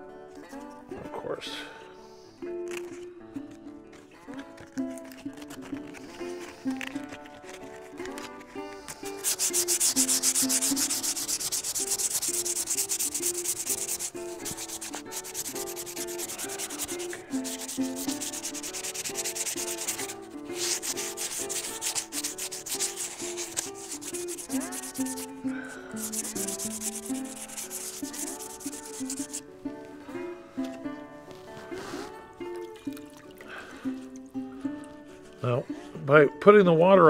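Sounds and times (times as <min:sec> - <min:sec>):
sandpaper scratching on stone: 0:05.0 - 0:29.4.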